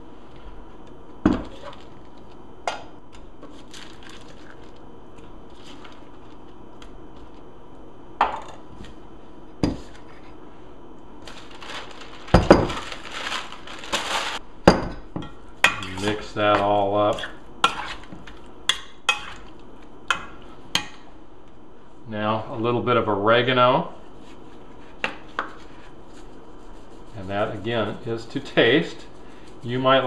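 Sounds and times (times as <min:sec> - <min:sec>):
waxed paper crinkling: 0:03.4 - 0:04.9, 0:11.2 - 0:14.4.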